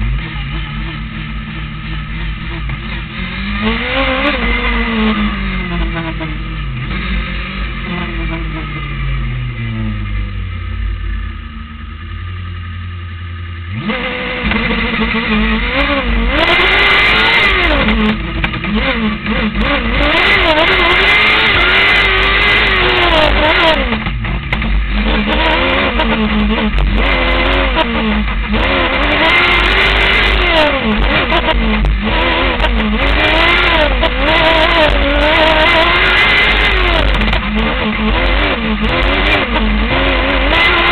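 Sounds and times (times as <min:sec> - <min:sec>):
race car engine revving: 0:00.0 - 0:40.9.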